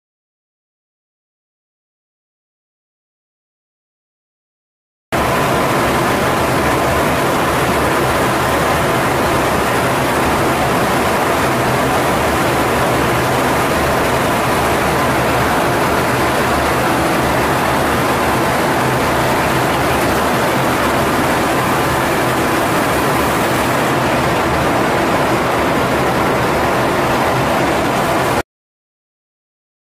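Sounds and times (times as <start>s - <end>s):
jet cockpit airflow and engine noise: 5.2s - 28.4s.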